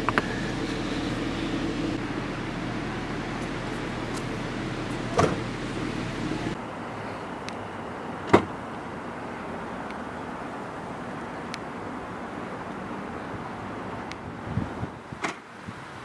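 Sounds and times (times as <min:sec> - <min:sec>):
outdoor background noise: 0:00.0 - 0:16.0
car boot lid shutting: 0:05.1 - 0:05.4.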